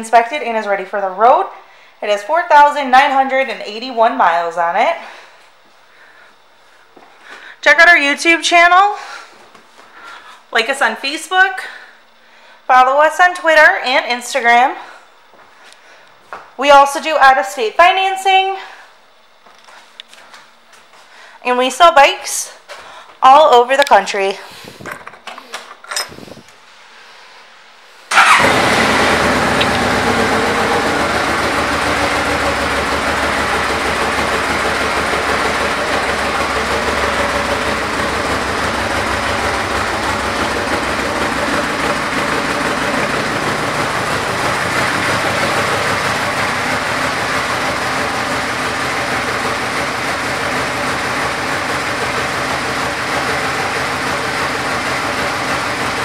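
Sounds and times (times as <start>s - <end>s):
motorcycle engine idling: 28.1s - 56.0s.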